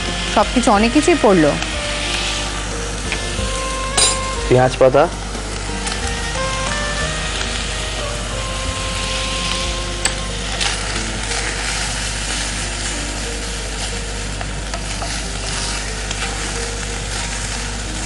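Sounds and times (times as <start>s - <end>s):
rice sizzling in a wok: 0.0s - 18.0s.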